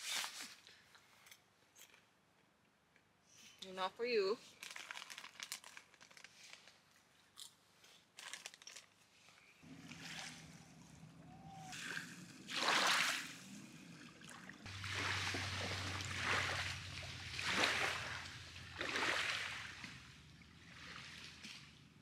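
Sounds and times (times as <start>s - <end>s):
open-air ambience: 0.0s - 22.0s
popcorn crunching: 4.6s - 6.2s, 8.2s - 8.9s.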